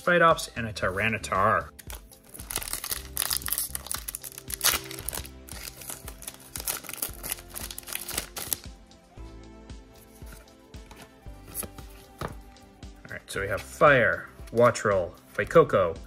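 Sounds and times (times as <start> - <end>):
background music: 0.0 - 16.0
foil wrapper crinkling and tearing: 1.8 - 8.6.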